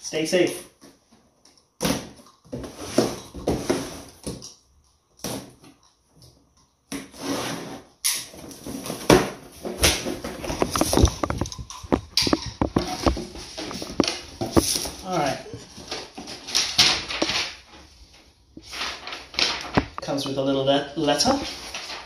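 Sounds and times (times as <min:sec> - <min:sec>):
cardboard flaps scraping: 0:07.0 - 0:11.6.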